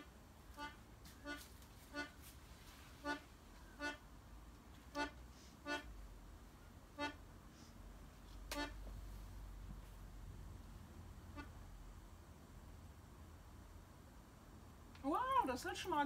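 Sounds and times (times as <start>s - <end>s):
accordion chord stabs: 0.0s - 2.2s, 3.0s - 4.0s, 4.9s - 5.9s, 8.5s - 8.8s.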